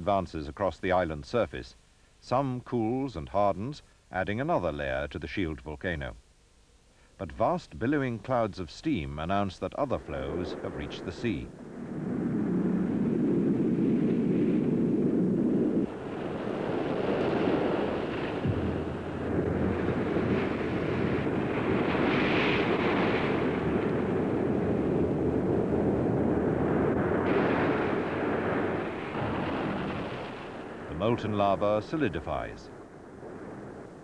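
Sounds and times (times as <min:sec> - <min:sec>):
surf roaring: 0:10.0 - 0:32.6.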